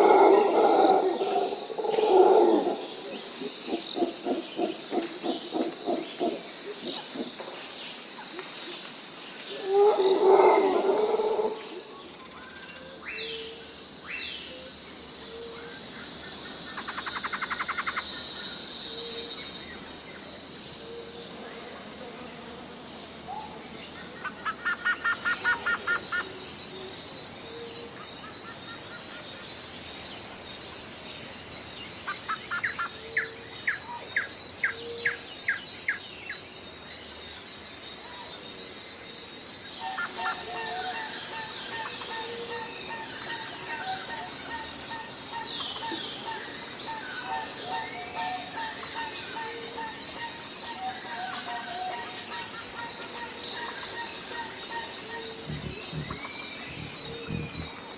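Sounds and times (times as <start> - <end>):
high insect drone: 0.0 - 57.9
birds chirping and singing: 31.5 - 57.9
loud animal call: 54.3 - 57.9
quick low hoots: 55.1 - 57.9.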